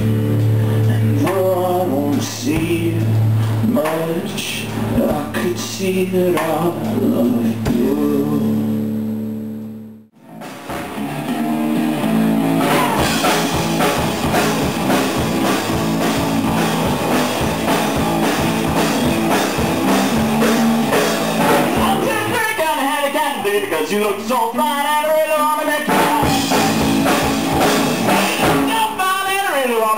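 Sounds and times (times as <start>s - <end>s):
rock band playing: 0.0s - 9.4s, 10.2s - 29.7s
man singing: 0.6s - 8.8s, 21.6s - 26.8s, 28.1s - 29.9s.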